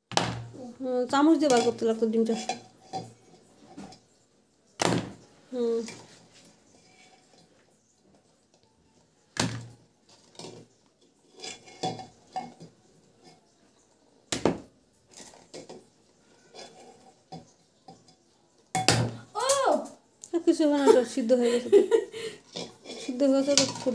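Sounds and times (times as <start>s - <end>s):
eggs knocking against a metal pot: 14.3s - 14.7s, 18.8s - 19.2s, 23.4s - 23.9s.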